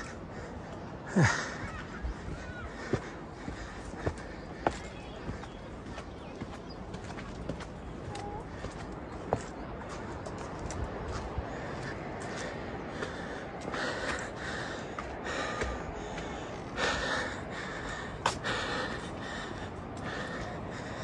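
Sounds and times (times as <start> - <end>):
person breathing hard: 0.0 - 4.9, 11.4 - 21.0.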